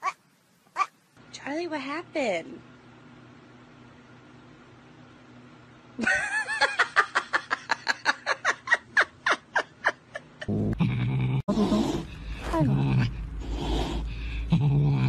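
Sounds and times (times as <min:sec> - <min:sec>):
person laughing hard: 0:06.0 - 0:10.6
low cat growl: 0:10.5 - 0:15.0.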